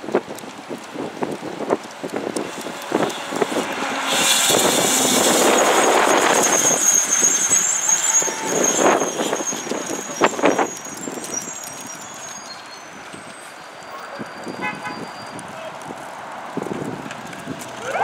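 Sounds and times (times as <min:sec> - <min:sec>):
fire engine driving past: 0:00.0 - 0:18.0
high thin squeal: 0:02.5 - 0:15.4.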